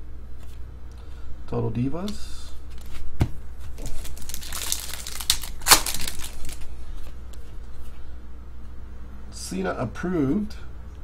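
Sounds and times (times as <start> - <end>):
foil wrapper crinkling and tearing: 3.8 - 7.1.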